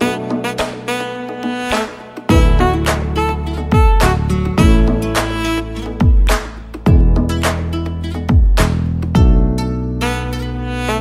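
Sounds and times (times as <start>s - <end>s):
sustained notes over deep bass: 2.3s - 6.3s.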